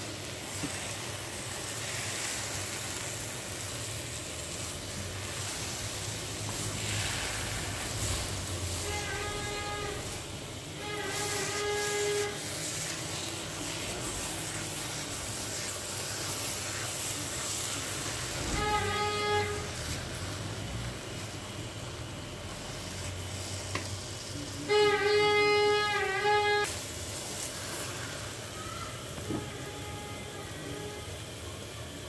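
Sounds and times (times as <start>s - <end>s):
carrots sizzling in a pan: 0.0s - 32.0s
horn-like tone: 5.4s - 21.6s, 24.4s - 26.8s, 29.2s - 31.4s.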